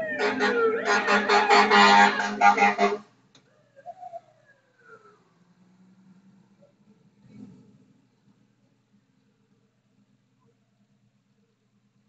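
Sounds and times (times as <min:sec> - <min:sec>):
faint fire truck siren wail: 0:00.0 - 0:06.1.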